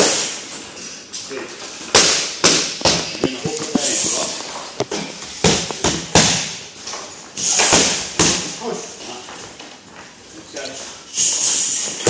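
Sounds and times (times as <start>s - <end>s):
gloves smacking focus mitts: 2.0s - 6.4s.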